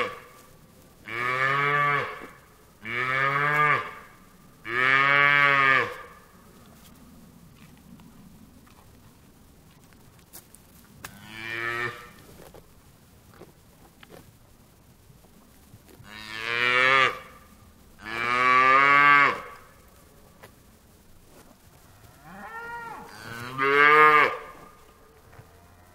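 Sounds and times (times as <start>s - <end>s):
cow mooing: 22.2s - 24.6s.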